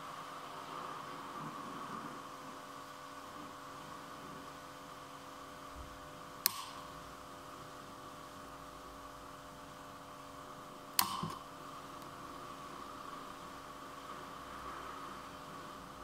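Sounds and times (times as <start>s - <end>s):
steady hiss and hum: 0.0s - 16.0s.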